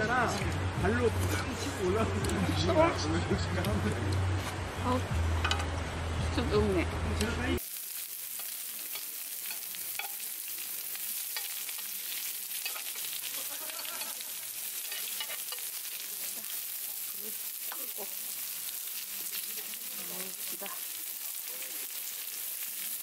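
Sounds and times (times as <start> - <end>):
frying pops and crackles: 7.6 - 23.0
meat sizzling on a griddle pan: 7.6 - 23.0.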